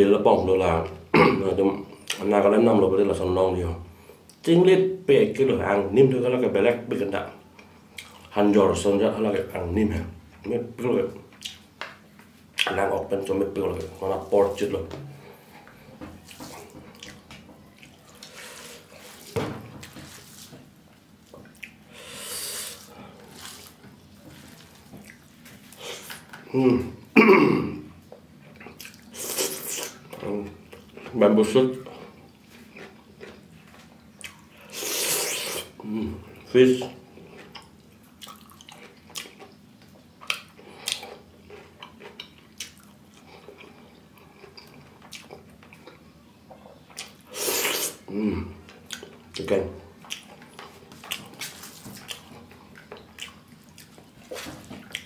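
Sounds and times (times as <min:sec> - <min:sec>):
person chewing food wetly: 0:07.4 - 0:08.3, 0:11.3 - 0:12.8, 0:15.0 - 0:27.2, 0:28.0 - 0:55.0.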